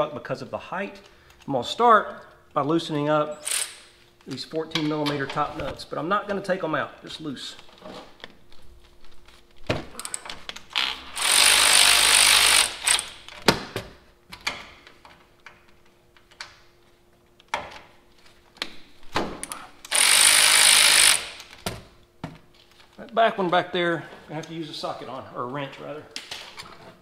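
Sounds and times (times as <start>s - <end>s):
cordless power tool spinning: 10.8s - 13.2s, 19.9s - 21.5s.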